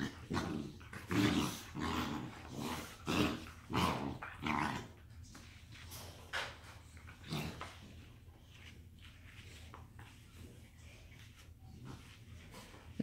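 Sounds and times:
puppies growling: 0:00.0 - 0:05.1, 0:06.6 - 0:08.1.

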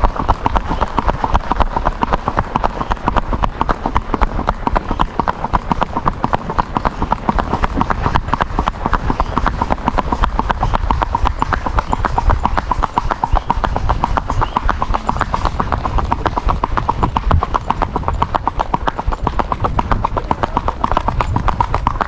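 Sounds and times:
horse hooves on asphalt: 0:00.0 - 0:22.0.

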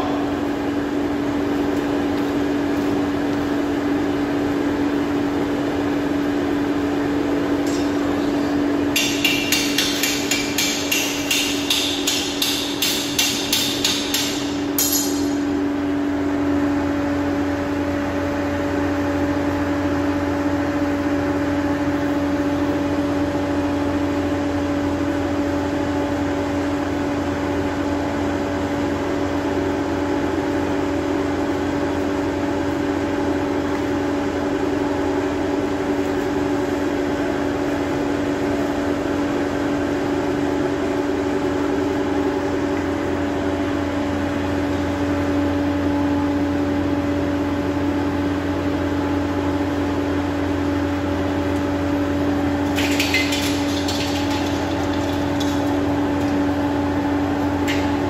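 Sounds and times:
steady machine hum: 0:00.0 - 0:58.0
hammer ringing on anvil: 0:09.0 - 0:15.5.

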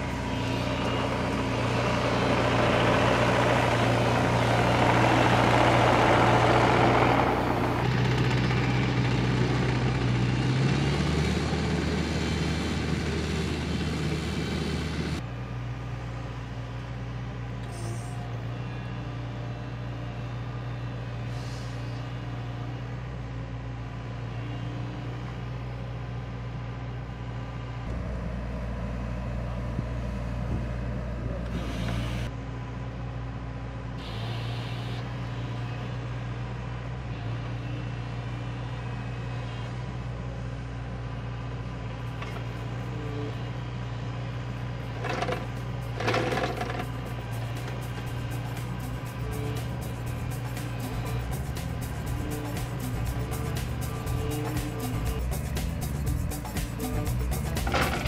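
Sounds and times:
excavator engine droning: 0:00.0 - 0:58.0
noisy rush of machine working: 0:26.8 - 0:33.0, 0:41.1 - 0:58.0.

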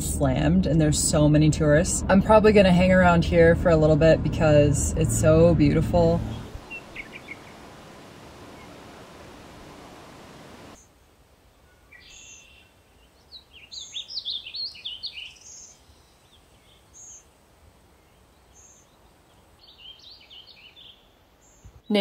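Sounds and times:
steady rushing noise: 0:04.3 - 0:10.8
birds chirping and warbling: 0:06.0 - 0:10.8, 0:11.6 - 0:17.3, 0:17.9 - 0:22.0.

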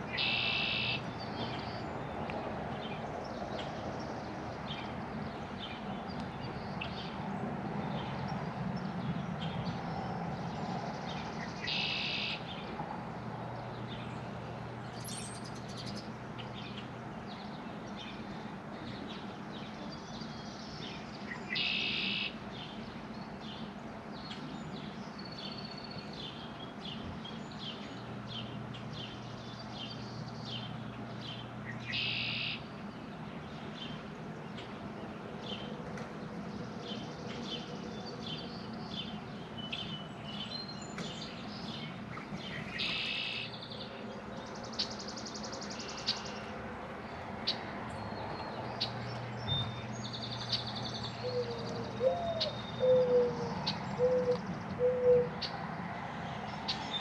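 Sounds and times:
small birds chirping: 0:13.6 - 0:57.0
dove cooing: 0:51.2 - 0:55.4.

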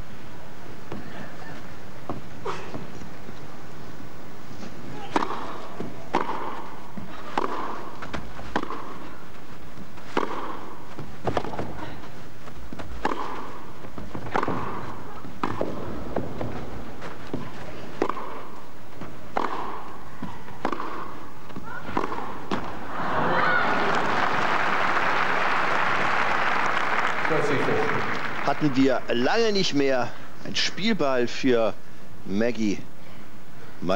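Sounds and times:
racket hitting tennis ball: 0:04.6 - 0:22.9
tennis ball bouncing: 0:04.6 - 0:22.9.

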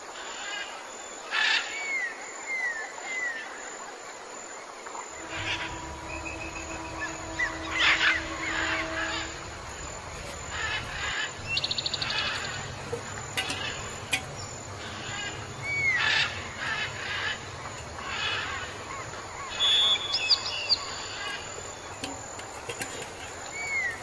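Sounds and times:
high piping bird notes: 0:05.1 - 0:24.0
downward-sliding bird whistles: 0:05.2 - 0:12.6, 0:19.5 - 0:21.4
rattling bird trill: 0:05.2 - 0:24.0.

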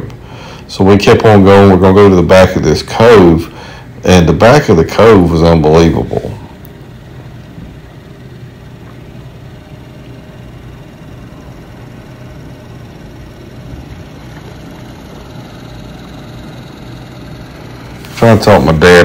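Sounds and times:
boat motor droning: 0:05.9 - 0:19.0.

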